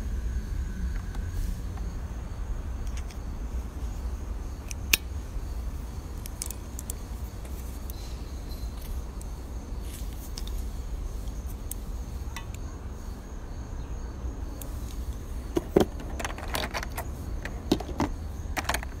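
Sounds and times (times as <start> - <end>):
low steady rumble: 0.0 - 19.0
grooming tools clinking in plastic tray: 15.6 - 19.0.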